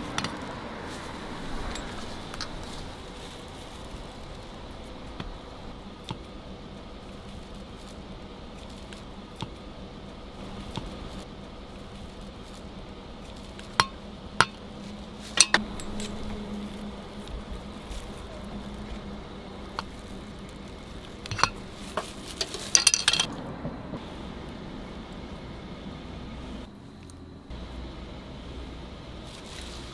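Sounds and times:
utensils clinking on metal bowls: 0.0 - 4.8, 13.7 - 19.0, 19.6 - 23.3
steady low hum: 0.0 - 29.9.

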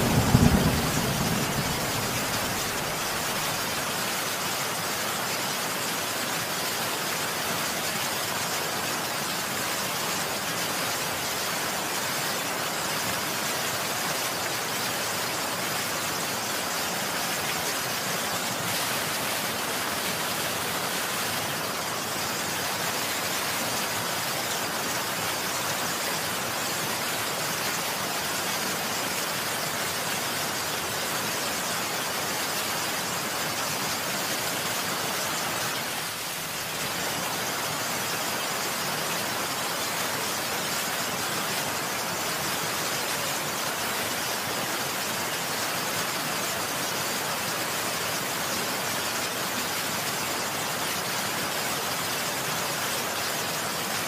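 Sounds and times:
heavy rain hissing: 0.0 - 54.0.

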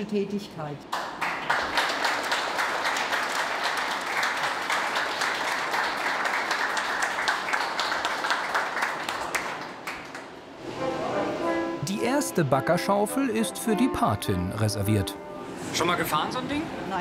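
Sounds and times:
group applauding: 0.9 - 10.5.

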